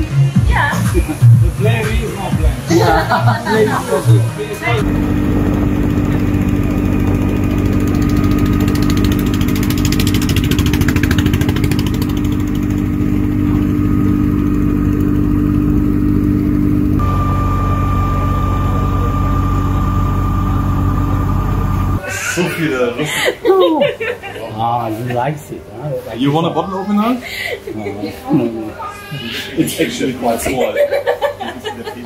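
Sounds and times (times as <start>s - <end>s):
boat engine droning: 3.2s - 22.0s.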